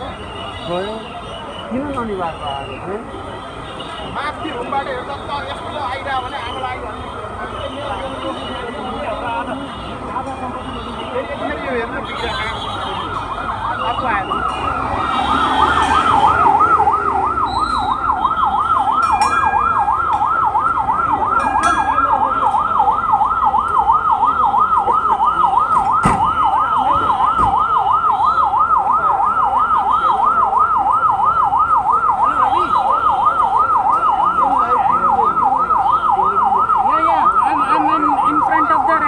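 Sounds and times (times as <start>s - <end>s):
fire truck siren yelping: 12.8s - 39.0s.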